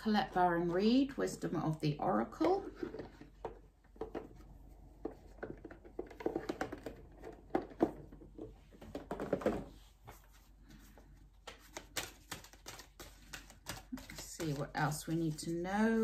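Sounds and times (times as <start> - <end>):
card deck handling taps and rustles: 11.4 - 15.5.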